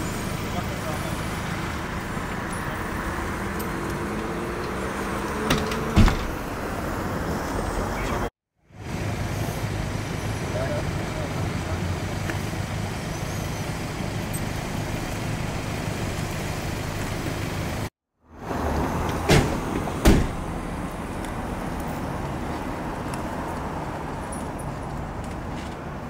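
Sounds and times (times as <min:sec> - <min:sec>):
vehicle engine idling: 0:00.0 - 0:04.6.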